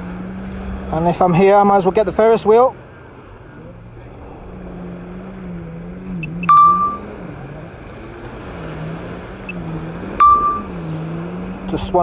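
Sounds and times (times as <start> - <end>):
low engine hum: 0.0 - 12.0
electronic ding: 6.4 - 7.0, 10.2 - 10.7.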